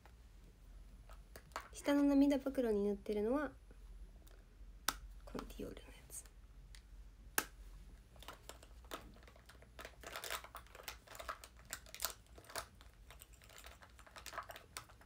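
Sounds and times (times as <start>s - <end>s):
packaging crinkling and rustling: 8.2s - 15.0s
small plastic clicks: 8.2s - 15.0s.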